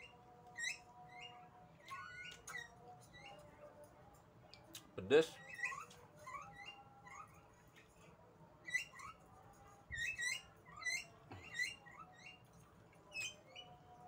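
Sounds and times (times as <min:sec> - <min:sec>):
small animal chirping: 0:00.0 - 0:03.4, 0:05.3 - 0:07.4, 0:08.6 - 0:09.3, 0:09.9 - 0:13.8.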